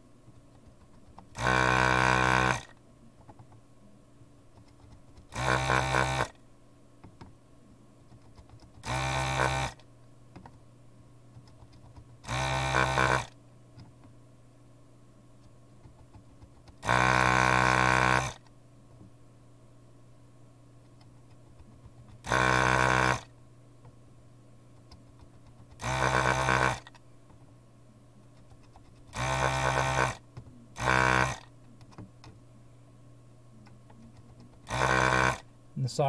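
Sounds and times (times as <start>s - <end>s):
desoldering pump buzzing: 1.3s - 2.8s, 5.2s - 6.4s, 8.7s - 9.8s, 12.2s - 13.4s, 16.8s - 18.5s, 22.2s - 23.3s, 25.6s - 27.0s, 29.1s - 30.2s, 30.8s - 31.5s, 34.6s - 35.5s.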